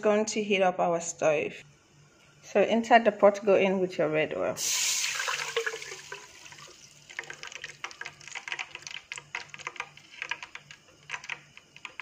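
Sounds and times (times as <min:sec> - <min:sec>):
hot oil crackling and popping: 0:04.6 - 0:12.0
oil pouring: 0:04.6 - 0:12.0.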